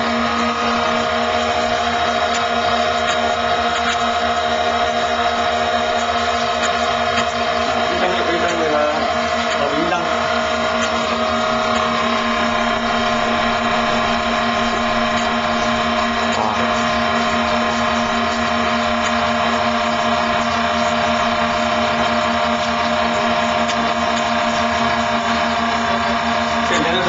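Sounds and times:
electric motors whining: 0.0 - 27.0.

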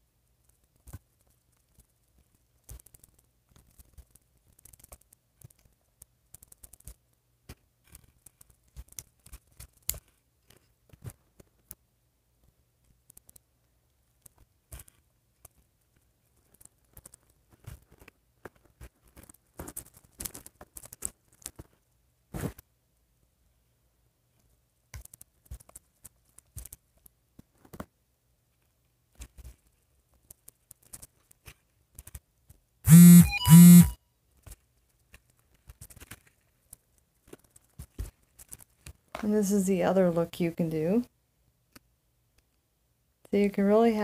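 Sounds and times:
plastic pieces clicking and tapping: 0.4 - 11.8, 12.8 - 13.5, 16.4 - 21.8, 24.9 - 27.9.

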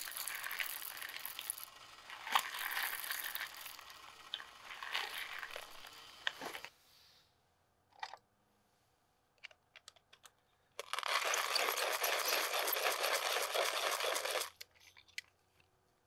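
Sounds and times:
hand coffee grinder crunching: 0.0 - 6.7, 10.8 - 15.2.

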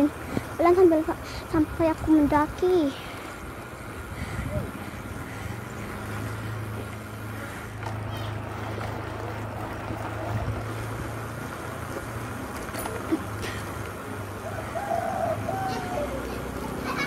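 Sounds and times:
bicycle road noise: 0.0 - 17.0
wind on microphone: 3.4 - 6.2.

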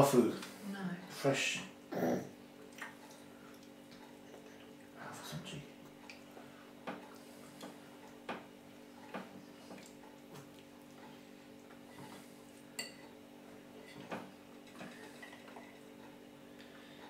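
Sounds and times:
spoon clinking on a plate: 12.8 - 13.1
spoon tapping and scraping a plate: 12.8 - 13.1.

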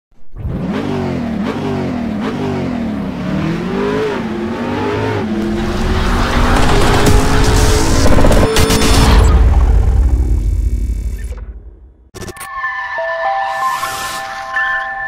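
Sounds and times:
car engine revving: 0.3 - 11.2.

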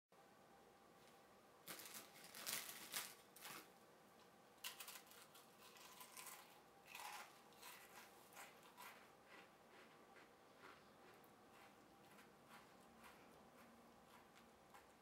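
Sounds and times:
crackers being crunched: 1.6 - 3.8, 4.6 - 10.7.

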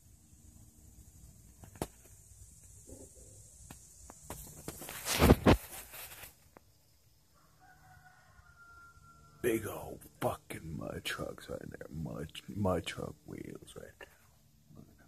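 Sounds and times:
rustling and rubbing on microphone: 4.1 - 6.6.

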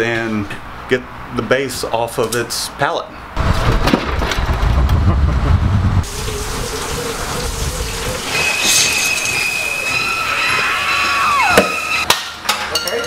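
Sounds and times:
steady hiss: 6.0 - 10.1.

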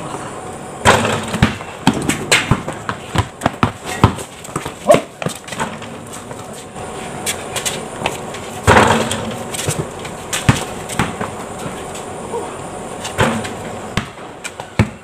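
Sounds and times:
basketball bouncing on concrete: 0.8 - 6.6, 7.2 - 12.0, 13.2 - 15.0
sneakers hitting concrete: 0.9 - 12.1.

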